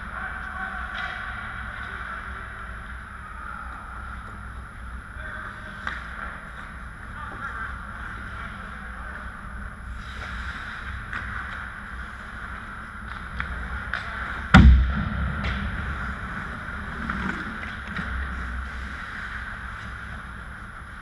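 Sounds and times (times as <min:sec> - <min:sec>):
background hum: 0:00.0 - 0:21.0
hockey sticks clicking on ice: 0:00.3 - 0:03.0, 0:05.6 - 0:07.6, 0:10.0 - 0:14.5
puck shot hitting hard: 0:14.5 - 0:15.8
skate blades scraping ice: 0:16.4 - 0:21.0.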